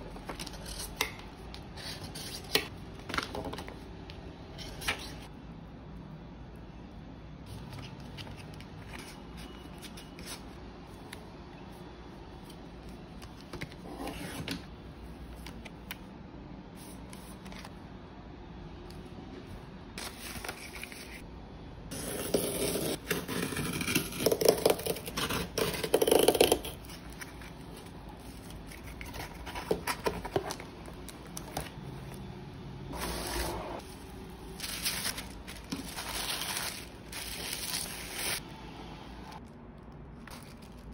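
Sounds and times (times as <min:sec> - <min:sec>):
paper and cardboard rustling: 0:26.8 - 0:32.3, 0:32.9 - 0:38.4.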